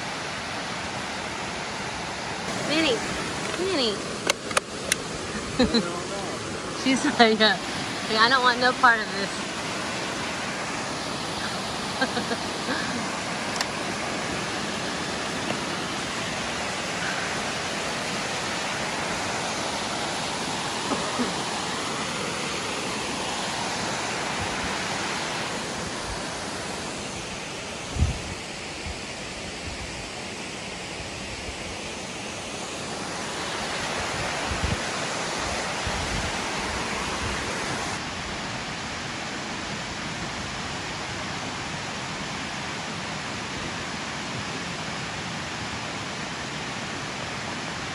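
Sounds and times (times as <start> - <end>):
waterfall rushing: 0.0 - 47.9.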